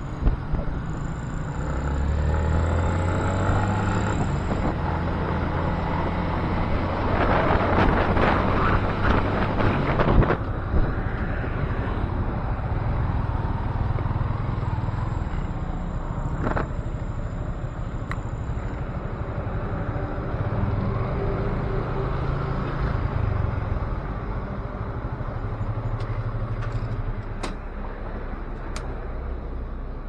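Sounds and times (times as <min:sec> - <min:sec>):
wind on microphone: 0:04.0 - 0:12.9.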